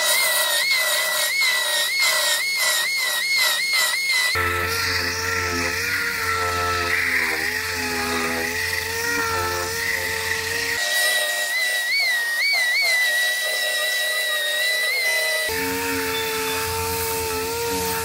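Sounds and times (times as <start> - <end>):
belt sander whining: 0.0 - 18.0
disc sander running: 0.0 - 18.0.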